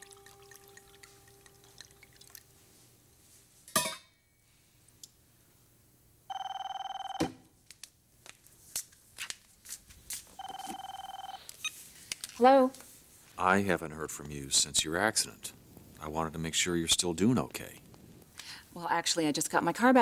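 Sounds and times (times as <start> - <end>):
telephone ringing: 6.3 - 7.4, 10.4 - 11.8.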